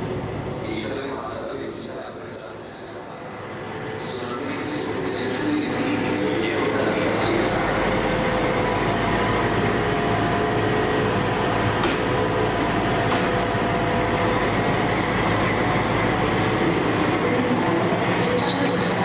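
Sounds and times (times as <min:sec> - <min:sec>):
locomotive engine idling: 0:00.0 - 0:19.0.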